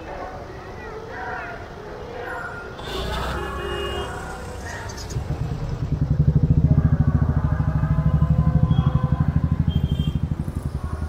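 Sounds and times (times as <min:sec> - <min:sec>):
vehicle engine throbbing: 0:02.8 - 0:11.0.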